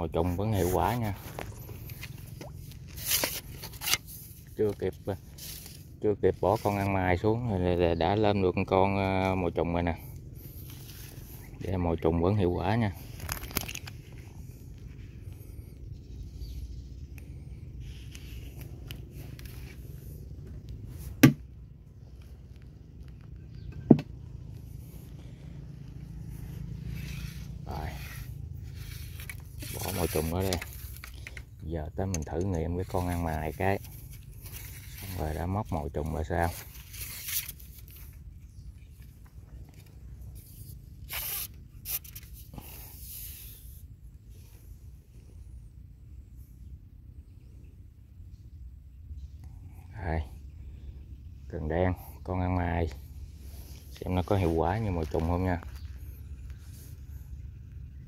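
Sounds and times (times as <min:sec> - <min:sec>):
steady low rumble: 0:00.0 - 0:58.0
sharp knocks: 0:21.2 - 0:21.4
hands rustling and scraping: 0:24.4 - 0:31.6.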